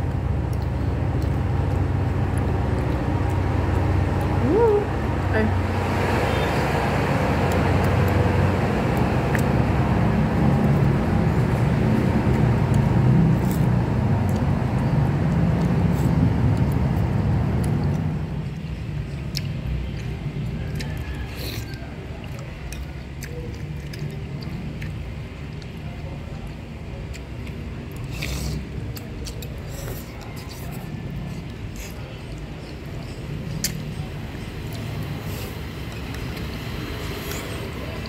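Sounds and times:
road traffic rumble: 0.0s - 38.0s
slurping noodle soup: 28.0s - 32.2s.

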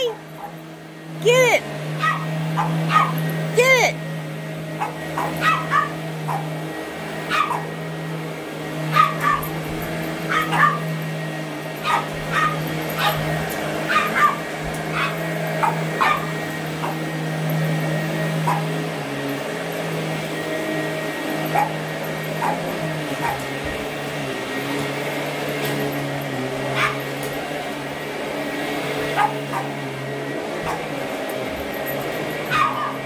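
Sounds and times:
dog barking and yipping: 0.0s - 0.6s, 1.9s - 3.8s, 4.8s - 6.6s, 7.2s - 7.8s, 8.9s - 11.1s, 11.7s - 18.8s, 21.4s - 23.9s, 26.4s - 27.6s, 29.0s - 29.9s, 30.5s - 33.0s
vacuum cleaner motor humming: 0.0s - 33.0s.

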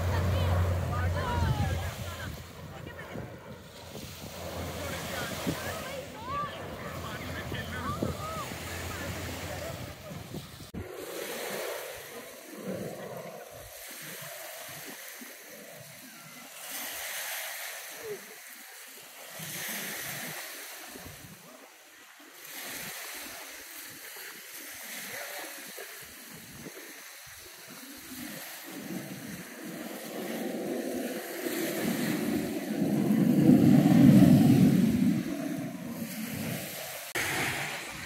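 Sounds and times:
people talking: 0.0s - 3.4s, 4.7s - 10.4s
small waves splashing: 0.0s - 38.0s.

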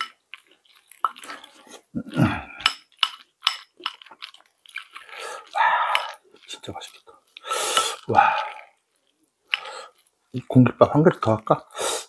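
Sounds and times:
chewing mouth clicks: 0.0s - 1.9s, 2.6s - 10.5s
person groaning hum: 2.0s - 2.6s.

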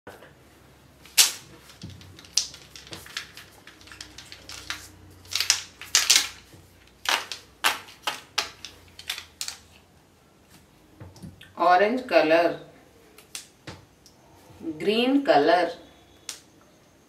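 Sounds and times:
plastic marker pens clicking: 1.2s - 6.4s, 7.1s - 9.6s.

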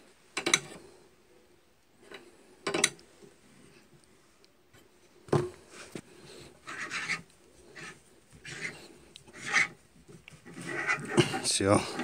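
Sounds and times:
reamer scraping metal: 6.6s - 9.8s, 10.4s - 12.0s.

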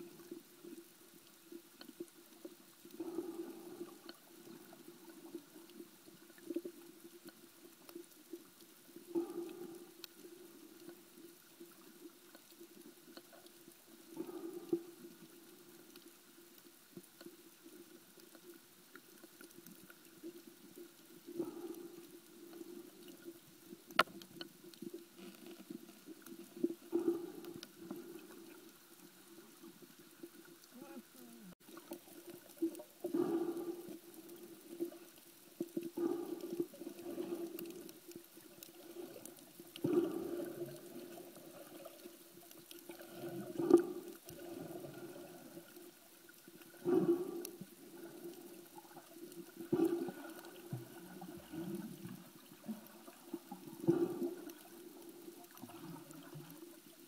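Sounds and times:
low underwater hum: 0.0s - 57.0s
swimmer breathing: 3.0s - 5.3s, 9.1s - 10.8s, 14.1s - 15.0s, 21.3s - 23.3s, 26.8s - 28.8s, 33.0s - 35.2s, 36.0s - 45.9s, 46.6s - 49.0s, 49.6s - 53.2s, 53.8s - 56.3s
exhaled bubbles: 35.7s - 45.8s, 46.7s - 56.9s.

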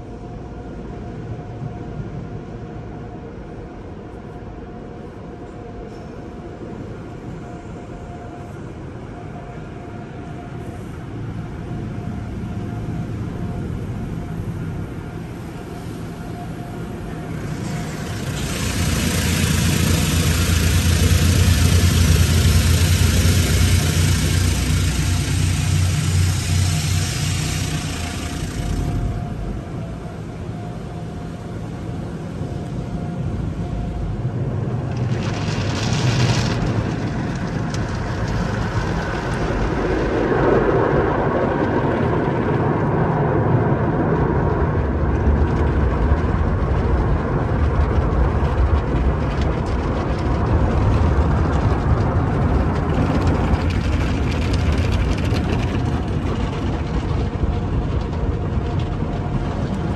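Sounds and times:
low mechanical rumble: 0.0s - 59.9s
water spray drumming on car: 17.5s - 29.0s.

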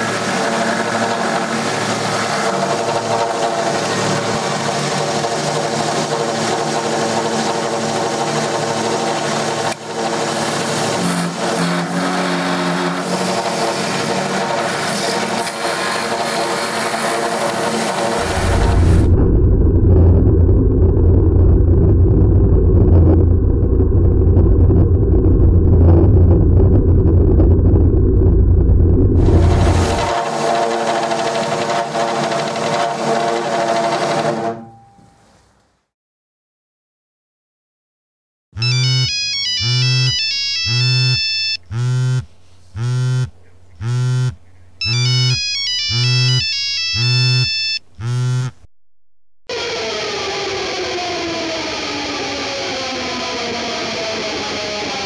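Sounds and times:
high beeping ringtone melody: 38.6s - 48.6s
phone vibration buzzing: 38.6s - 48.7s.

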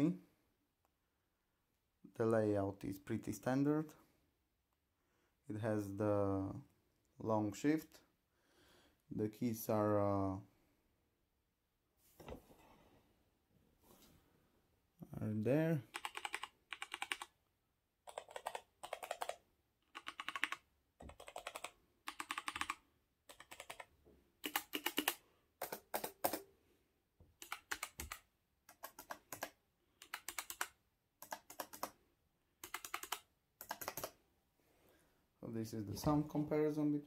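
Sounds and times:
mechanical keyboard typing: 15.9s - 17.3s, 18.0s - 26.4s, 27.4s - 32.0s, 32.6s - 34.2s.

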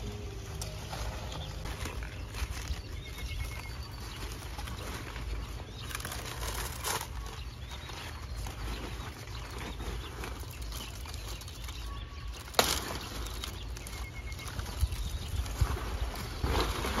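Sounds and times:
leaves and paper bags rustling: 0.0s - 17.0s
wind rumble on microphone: 14.2s - 17.0s.

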